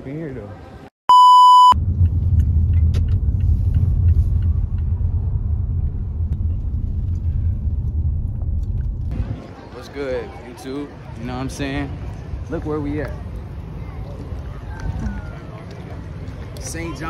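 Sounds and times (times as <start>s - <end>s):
high electronic beep: 1.1s - 1.8s
car moving rumble: 1.8s - 9.8s.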